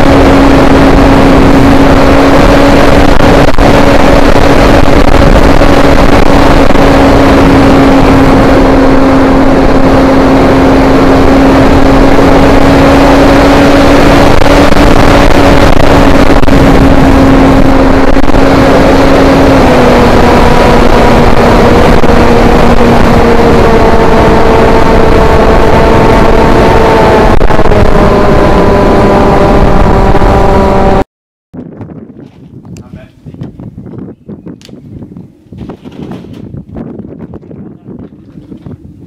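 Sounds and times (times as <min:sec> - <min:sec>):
model plane motor drone: 0:00.0 - 0:30.6.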